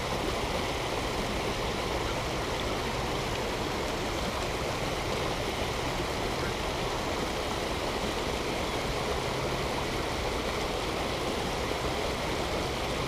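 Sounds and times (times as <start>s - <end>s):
waterfall splashing into lake: 0.0s - 13.0s.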